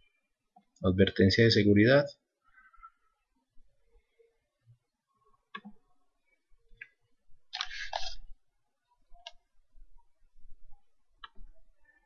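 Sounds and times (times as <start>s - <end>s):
computer mouse clicks: 5.5s - 5.8s, 11.2s - 11.4s.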